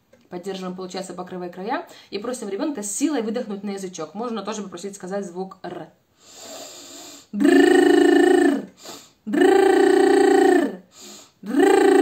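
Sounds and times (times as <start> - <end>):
soft breath in: 6.2 - 7.3, 8.8 - 9.2, 10.9 - 11.4
woman voicing buzzing rolled r: 7.3 - 12.0.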